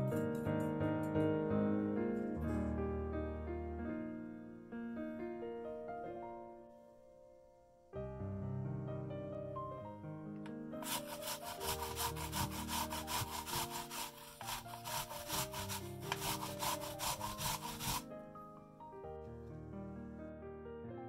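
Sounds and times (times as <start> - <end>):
apple grated on metal grater: 10.8 - 18.0.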